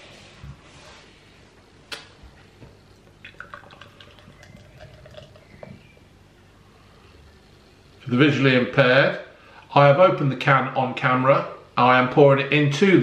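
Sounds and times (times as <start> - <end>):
beer pouring into glass: 2.8 - 6.0.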